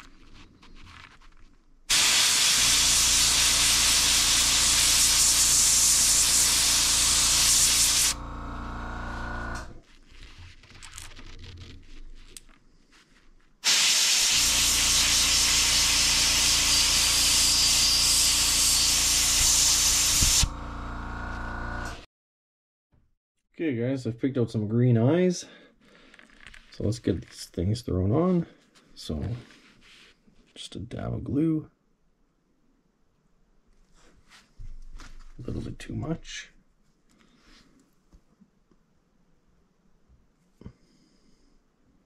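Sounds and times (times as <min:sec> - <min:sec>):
airbrush spraying hiss: 0:01.9 - 0:08.2, 0:13.6 - 0:20.5
low hum: 0:08.0 - 0:09.8.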